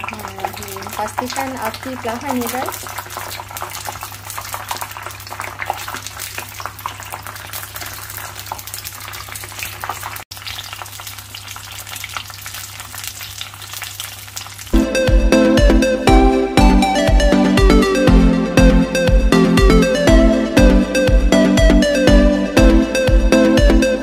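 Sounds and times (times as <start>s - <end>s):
deep-frying oil crackling: 0.0s - 14.8s.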